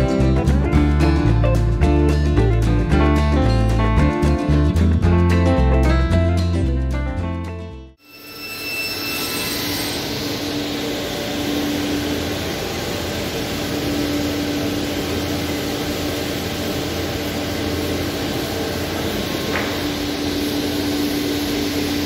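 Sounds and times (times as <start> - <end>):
workshop machinery humming: 9.2 - 22.0.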